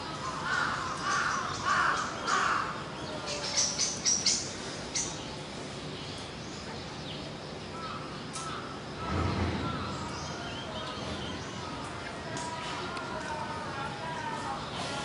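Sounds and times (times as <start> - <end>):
crow cawing: 0.4 - 2.8.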